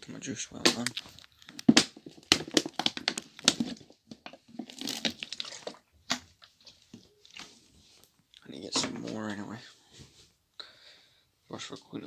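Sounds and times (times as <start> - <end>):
rustling and crinkling: 0.1 - 10.4.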